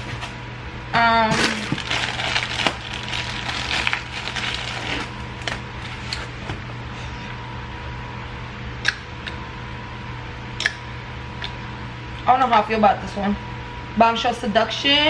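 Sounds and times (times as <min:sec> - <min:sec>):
plastic packaging crinkling: 0:01.3 - 0:06.3.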